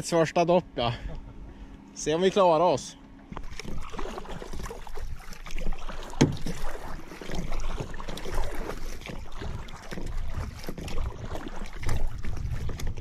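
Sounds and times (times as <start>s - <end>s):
paddle blades splashing water: 3.2s - 13.0s.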